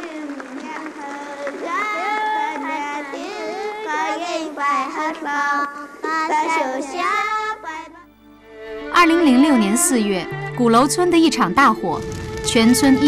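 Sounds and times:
child singing: 0:00.0 - 0:08.1.

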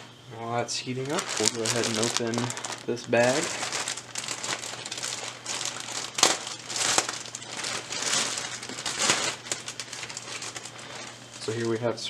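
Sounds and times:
plastic bag crinkling: 0:00.8 - 0:12.0.

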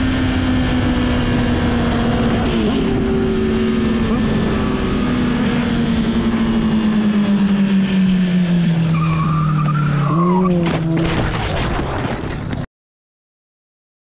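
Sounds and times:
tyre squeal: 0:08.9 - 0:10.7
motorcycle crashing knocks and scraping: 0:10.6 - 0:12.6.

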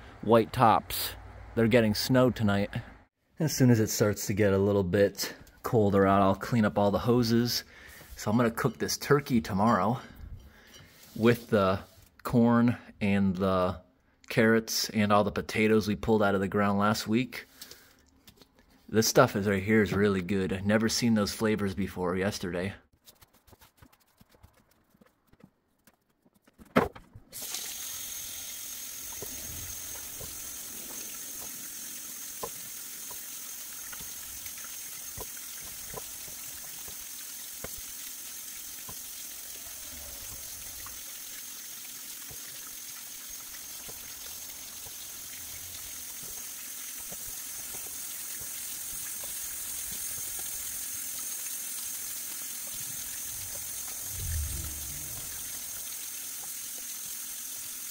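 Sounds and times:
faucet running into sink: 0:27.4 - 0:57.9.

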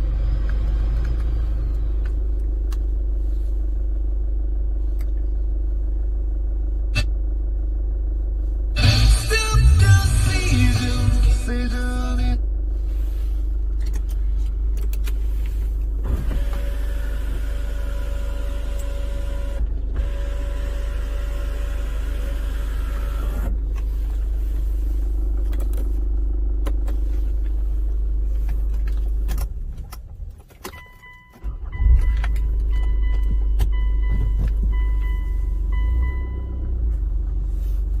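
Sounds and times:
car engine low rumble: 0:00.0 - 0:38.0
power window motor whining: 0:16.0 - 0:24.0.

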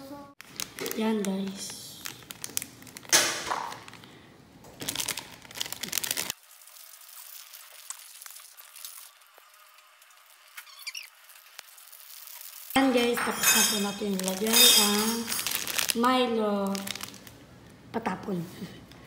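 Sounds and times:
plastic pack crinkling: 0:00.4 - 0:06.4, 0:13.7 - 0:17.4.

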